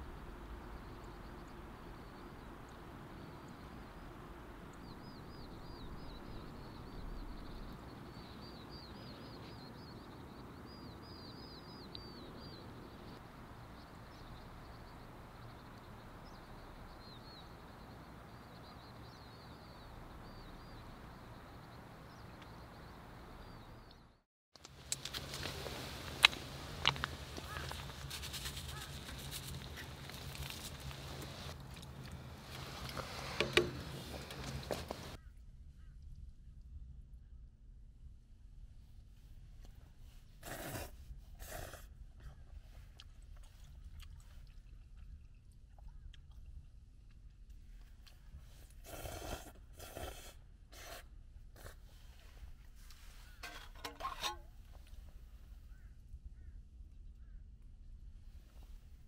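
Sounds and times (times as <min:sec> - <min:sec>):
small birds chirping: 0:00.0 - 0:24.2, 0:24.8 - 0:36.0
quiet chewing: 0:24.6 - 0:35.2, 0:40.4 - 0:54.0
noodles slurped: 0:40.4 - 0:41.9, 0:48.0 - 0:51.0.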